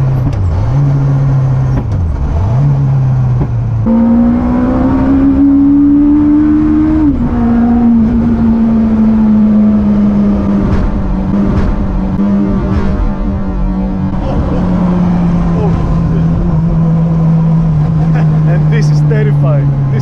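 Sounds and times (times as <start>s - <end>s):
motorcycle engine revving in car: 0.0s - 20.0s.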